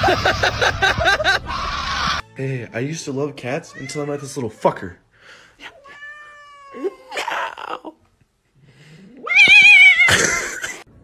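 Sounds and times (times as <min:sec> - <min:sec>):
cat crying and yowling: 0:05.7 - 0:07.9, 0:09.2 - 0:10.4.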